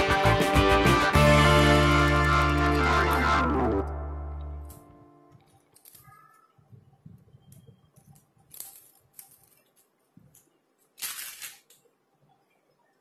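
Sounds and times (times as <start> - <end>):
plastic sleeve crinkling: 7.9 - 12.0.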